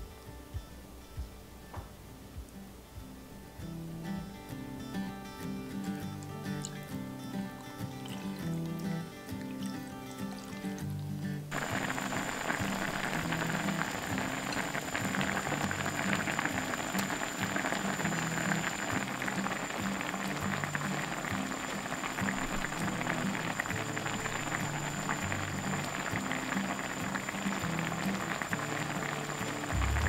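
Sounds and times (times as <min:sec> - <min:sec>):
soft background music: 0:00.0 - 0:30.0
sauce bubbling and popping: 0:07.6 - 0:30.0.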